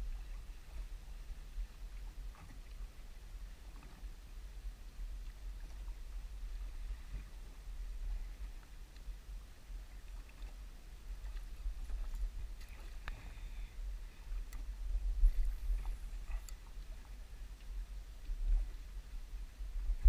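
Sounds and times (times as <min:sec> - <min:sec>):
water lapping against boat hull: 0:00.0 - 0:20.0
faint clicks: 0:11.2 - 0:13.3.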